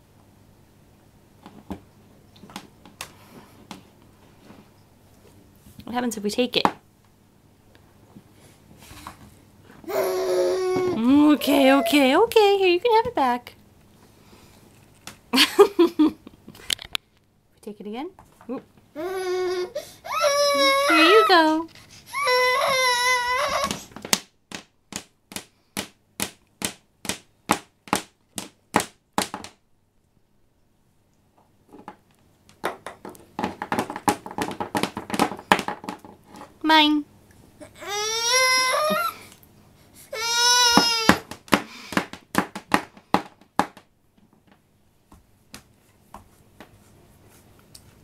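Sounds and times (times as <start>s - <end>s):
baby crying: 9.8s - 12.2s, 19.0s - 21.5s, 22.1s - 23.9s, 37.6s - 39.3s, 40.1s - 41.3s
cord whacking wooden floor: 32.6s - 36.5s
baby slapping wooden floor: 40.7s - 43.8s.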